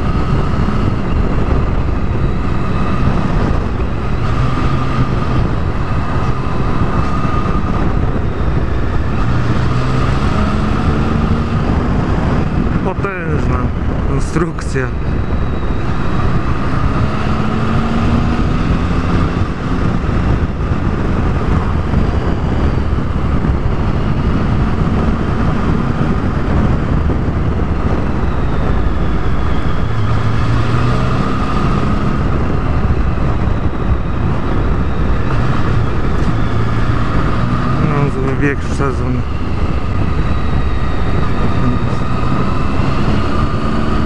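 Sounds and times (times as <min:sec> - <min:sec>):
road and wind noise: 0:00.0 - 0:44.0
motorcycle engine running: 0:14.8 - 0:44.0.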